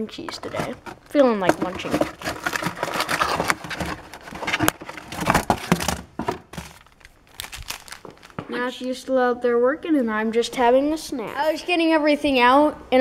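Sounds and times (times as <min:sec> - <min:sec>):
cracker box and wrapper crinkling: 0:00.0 - 0:08.5.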